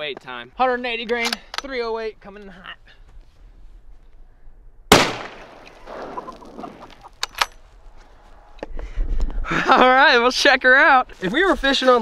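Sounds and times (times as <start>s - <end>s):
rifle shot with echo: 4.9s - 6.8s.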